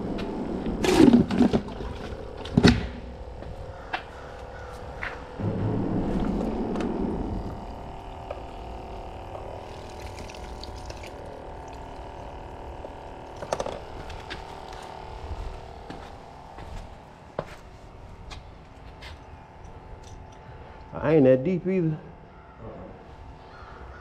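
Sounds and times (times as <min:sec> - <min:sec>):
steady hum: 0:00.0 - 0:24.0
footsteps on concrete: 0:03.4 - 0:07.0, 0:13.8 - 0:19.3.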